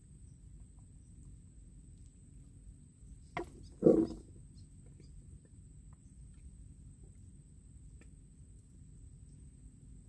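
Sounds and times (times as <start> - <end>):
faint low rumble: 0.0 - 10.0.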